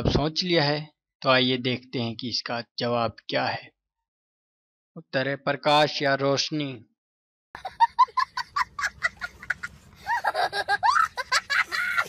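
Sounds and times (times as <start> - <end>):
high-pitched laughter: 7.6 - 12.0.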